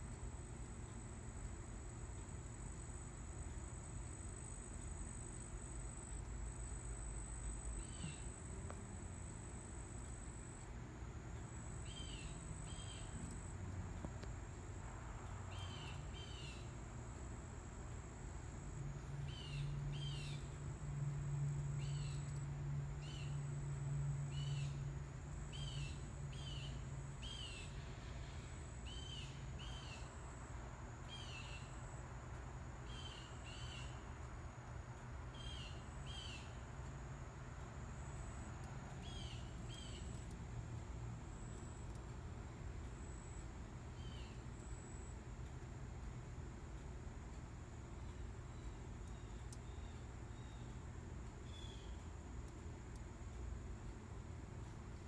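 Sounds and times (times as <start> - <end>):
low steady hum: 0.0 - 55.0
high insect trill: 0.2 - 53.3.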